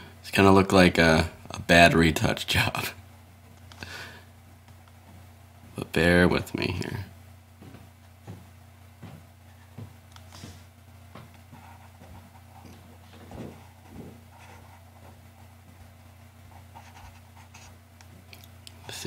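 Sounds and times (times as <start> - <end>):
soft bumps: 7.6 - 14.3.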